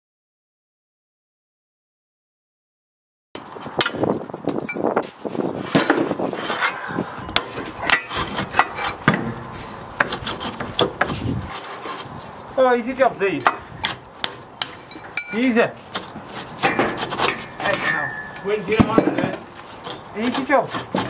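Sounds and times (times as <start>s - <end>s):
bricks knocking and scraping: 3.4s - 12.2s, 13.3s - 21.0s.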